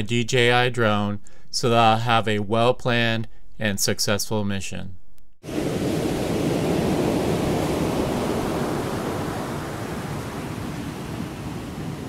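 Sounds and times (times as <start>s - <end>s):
ocean surf on rocky shore: 5.4s - 12.0s.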